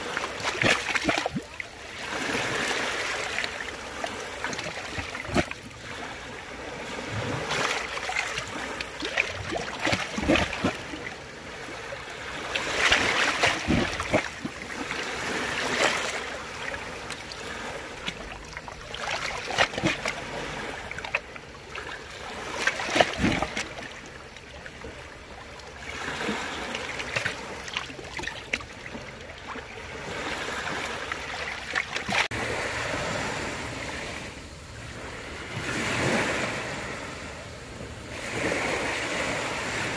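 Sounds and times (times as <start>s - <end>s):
sea waves washing ashore: 0.0s - 39.9s.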